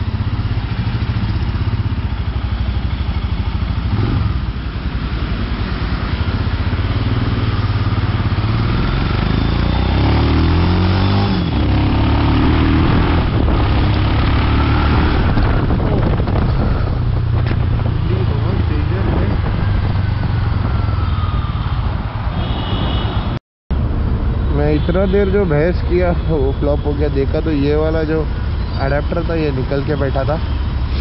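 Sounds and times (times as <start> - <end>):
motorcycle engine running: 0.0 - 21.0.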